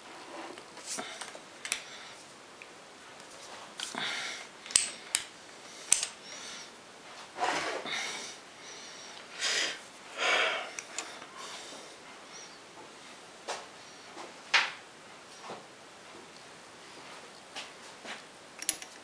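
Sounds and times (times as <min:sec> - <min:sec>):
sharp metal clicks: 0:04.6 - 0:05.3, 0:05.9 - 0:06.2, 0:18.6 - 0:19.0.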